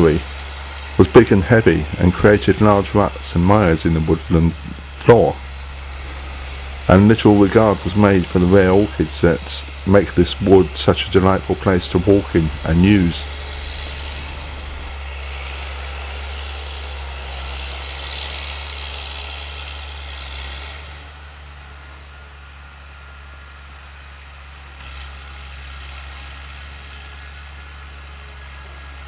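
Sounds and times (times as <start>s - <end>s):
diesel engine droning: 0.0s - 29.0s.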